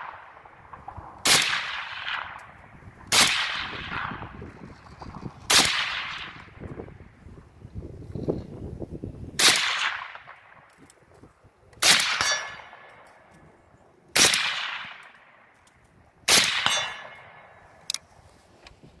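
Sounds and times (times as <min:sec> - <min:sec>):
suppressed rifle shots: 0:00.0 - 0:04.5, 0:05.4 - 0:06.8, 0:09.4 - 0:10.7, 0:11.8 - 0:13.3, 0:14.2 - 0:15.6, 0:16.3 - 0:17.6
metallic clang of steel targets: 0:11.8 - 0:13.3, 0:16.3 - 0:18.0.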